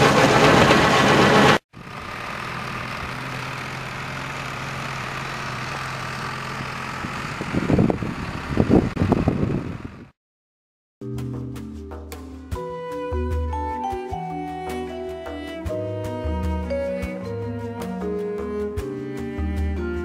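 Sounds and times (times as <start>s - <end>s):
engine idling: 0.0s - 10.1s.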